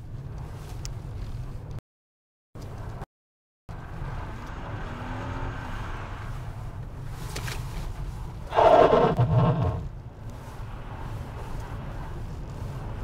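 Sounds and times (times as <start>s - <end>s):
car engine revving: 8.5s - 10.0s.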